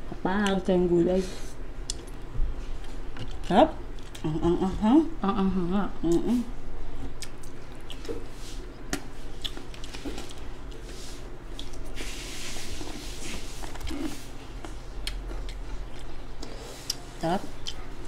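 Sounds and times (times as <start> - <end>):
chewing and lip smacks: 1.8 - 4.2, 7.0 - 8.3, 8.9 - 10.8, 11.5 - 11.9, 13.6 - 17.0, 17.6 - 18.0.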